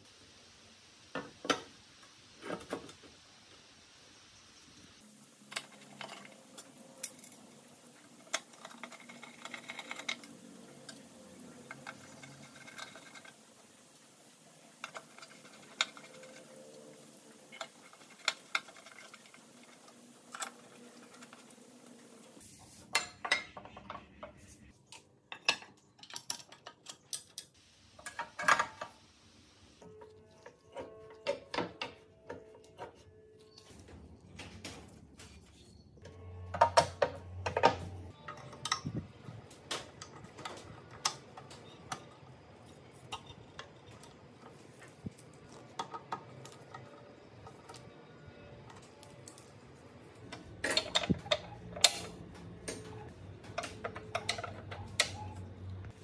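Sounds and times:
screwdriver and metal parts clinking: 50.2s - 55.4s.

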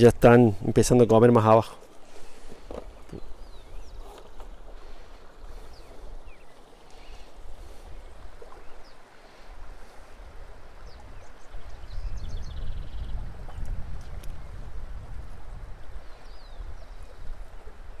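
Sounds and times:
river running: 0.0s - 18.0s
wind rumbling on microphone: 2.1s - 18.0s.

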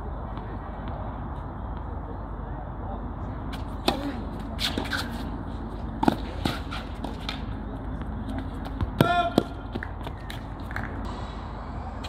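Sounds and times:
tennis ball struck by racket: 3.8s - 5.2s
tennis ball bouncing on court: 6.0s - 7.4s.

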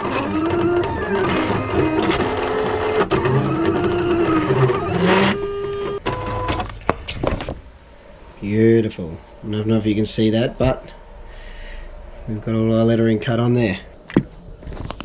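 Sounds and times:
cutting machine motors whining: 0.0s - 6.7s.

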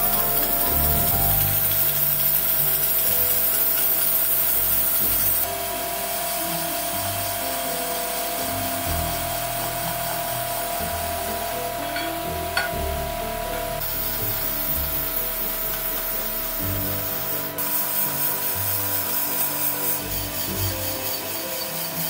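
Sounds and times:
power tool grinding metal: 0.0s - 12.8s, 13.7s - 22.0s
background music: 0.0s - 22.0s.

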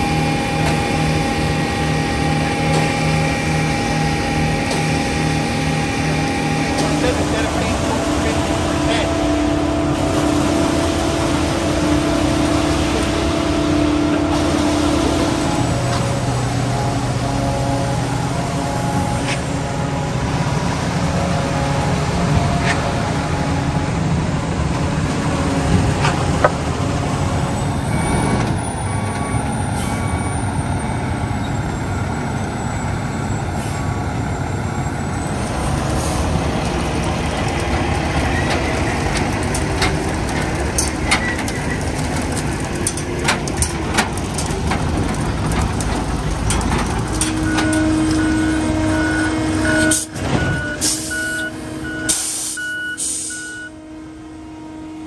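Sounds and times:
reversing alarm beeping: 0.0s - 19.6s, 27.1s - 36.2s, 47.1s - 53.8s
diesel truck engines running: 0.0s - 55.0s.

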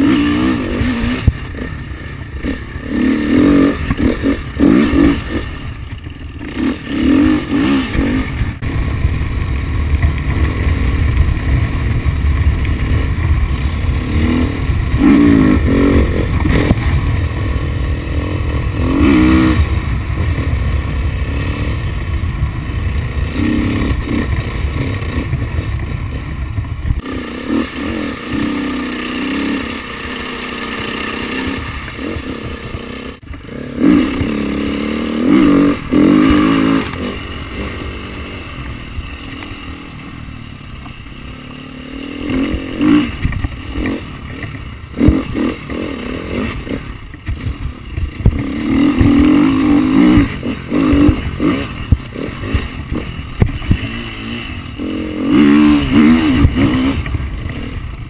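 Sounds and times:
dirt bike engine revving: 0.0s - 58.0s
wind rumble on microphone: 7.9s - 27.1s, 46.4s - 58.0s.

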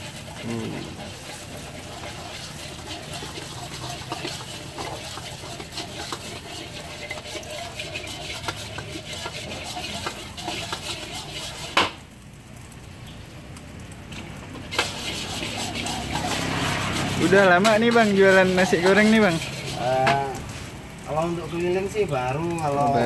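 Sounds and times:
metal spatula scraping wok: 0.0s - 12.0s, 14.6s - 20.8s
spatula clanging on wok: 0.2s - 11.9s.

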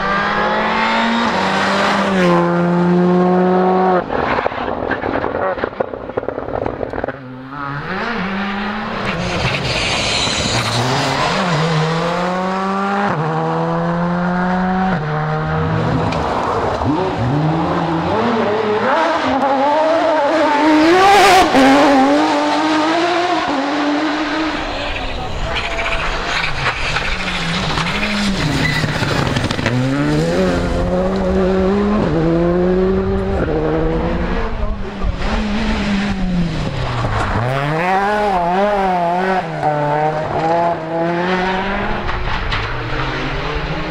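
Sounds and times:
gravel and tyre noise: 0.0s - 43.9s
rally car engine at full throttle: 0.0s - 43.9s
tyres hissing on gravel: 9.4s - 11.0s.

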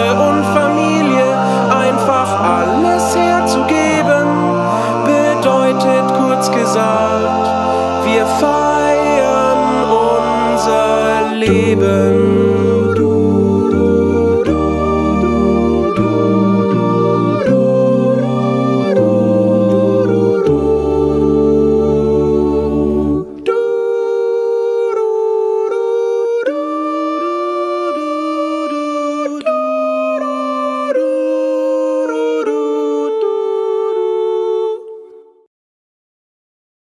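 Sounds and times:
deep vocal bass: 0.0s - 23.6s
a cappella group singing: 0.0s - 35.5s.

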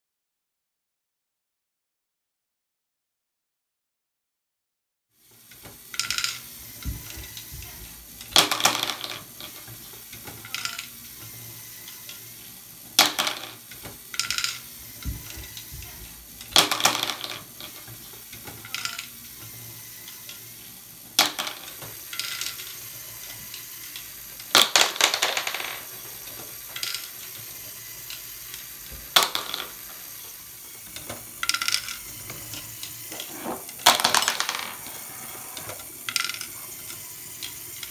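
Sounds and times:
plastic balls clattering: 6.0s - 9.7s, 13.0s - 19.0s, 21.2s - 22.6s, 24.4s - 27.2s, 29.0s - 30.0s, 30.9s - 36.6s
motor hum: 6.5s - 13.0s, 13.6s - 24.6s.

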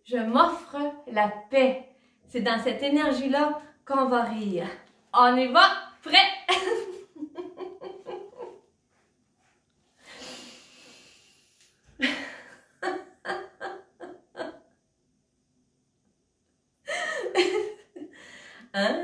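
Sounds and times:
woman laughing in rhythmic bursts: 6.5s - 8.7s, 12.0s - 14.6s, 16.9s - 18.3s
woman breathing: 9.9s - 12.6s, 18.1s - 18.8s.

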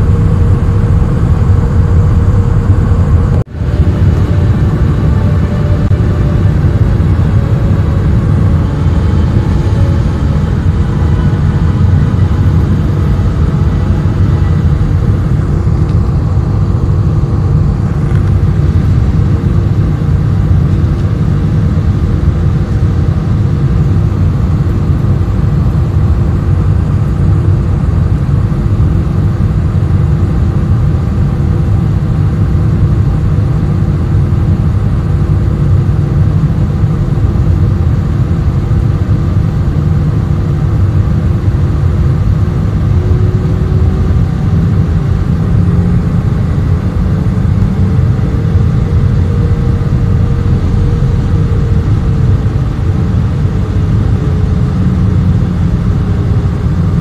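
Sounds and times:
jet airliner cabin roar: 0.0s - 57.0s
jet engine hum: 0.0s - 57.0s.

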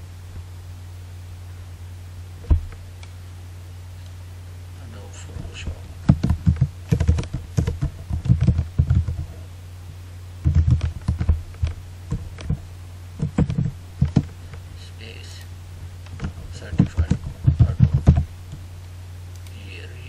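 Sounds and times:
steady low hum: 0.0s - 20.0s
keyboard keys clicking: 6.1s - 9.3s, 10.4s - 12.6s, 16.1s - 18.3s.

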